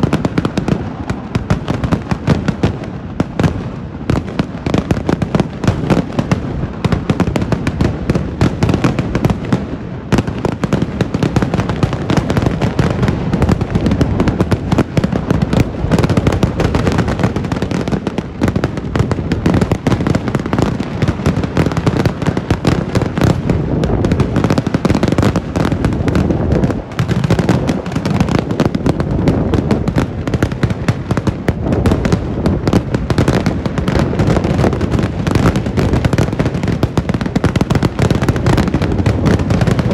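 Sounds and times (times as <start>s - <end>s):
fireworks exploding: 0.0s - 39.9s.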